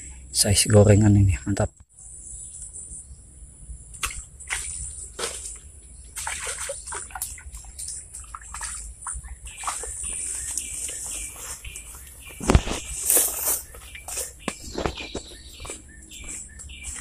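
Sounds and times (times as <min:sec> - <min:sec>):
grass rustling against phone: 0:09.5 - 0:17.0.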